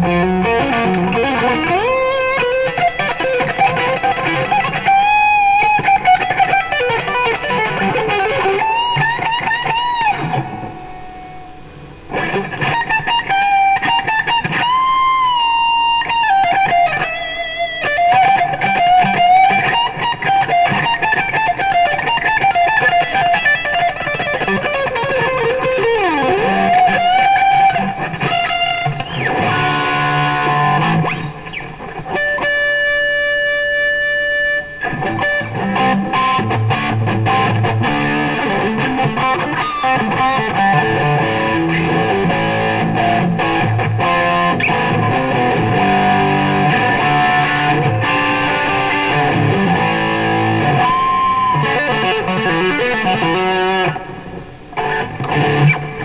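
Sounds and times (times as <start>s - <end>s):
electric guitar lead lines: 0.0s - 56.0s.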